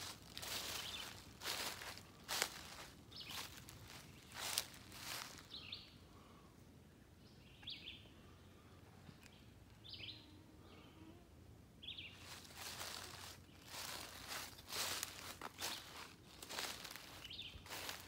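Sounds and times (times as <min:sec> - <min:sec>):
footsteps crunching dry leaves: 0:00.0 - 0:05.7, 0:12.2 - 0:18.0
songbird chirping: 0:00.0 - 0:11.2, 0:11.8 - 0:18.0.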